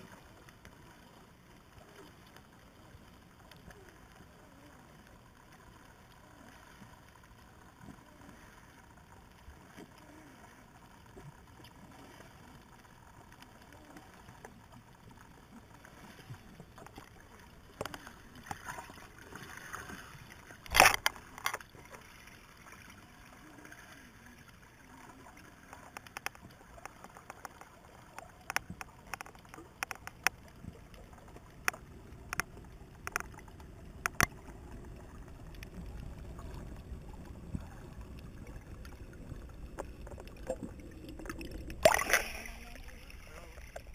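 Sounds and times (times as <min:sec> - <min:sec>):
faint underwater hiss: 0:00.0 - 0:43.9
sharp underwater clicks: 0:16.8 - 0:21.8, 0:25.6 - 0:36.6, 0:38.1 - 0:43.9.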